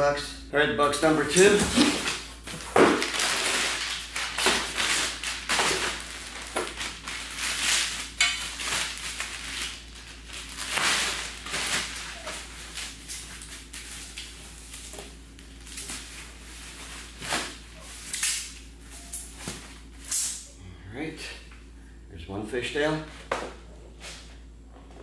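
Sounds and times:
packing rustling and crinkling: 0:01.4 - 0:18.1.

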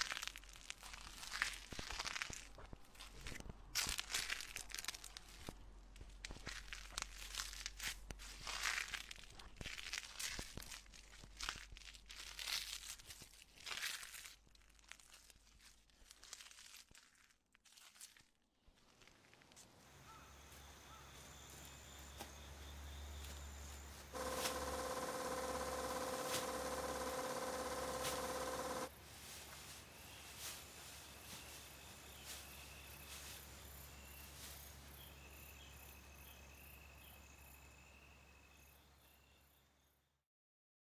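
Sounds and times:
plant material crumpling and rustling: 0:00.0 - 0:19.7
insects chirping: 0:20.1 - 0:28.9
thin steady tone: 0:24.2 - 0:28.9.

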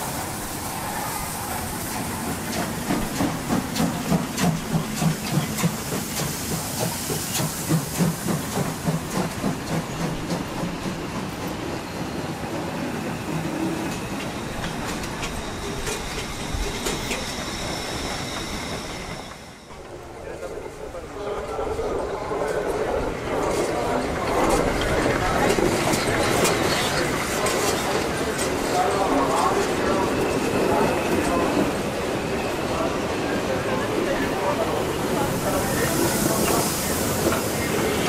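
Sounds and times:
steam hissing: 0:00.0 - 0:20.0, 0:22.0 - 0:38.0
steam locomotive exhaust chuffs: 0:01.5 - 0:12.6.

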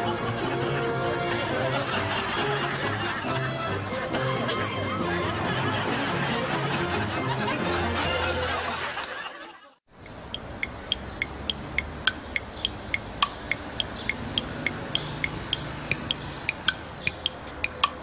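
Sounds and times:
music: 0:00.0 - 0:09.0, 0:13.3 - 0:18.0
laughter: 0:00.0 - 0:09.8
light background music ticking beat: 0:10.0 - 0:18.0.

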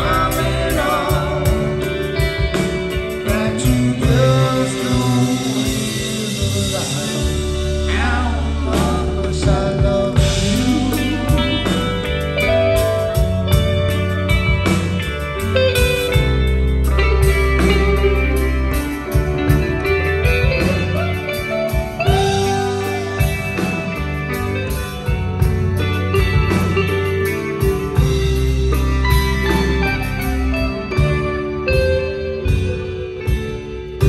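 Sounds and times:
man singing: 0:00.0 - 0:12.8
bass guitar: 0:00.0 - 0:34.0
drums: 0:00.0 - 0:34.0
electric guitar with bends: 0:00.0 - 0:34.0.

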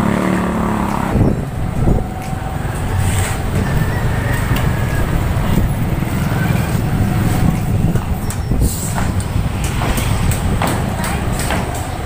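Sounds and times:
motorcycle engine running: 0:00.0 - 0:08.2
wind rumble on microphone: 0:00.0 - 0:12.0.

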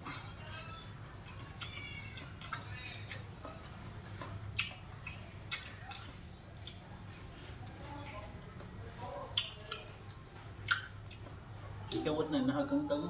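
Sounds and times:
chewing with wet smacks: 0:01.5 - 0:06.9, 0:09.2 - 0:12.1.

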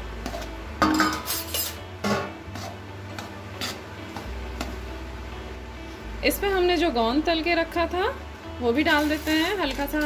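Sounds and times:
metal spatula scraping a pan: 0:02.5 - 0:03.8, 0:08.8 - 0:10.0.

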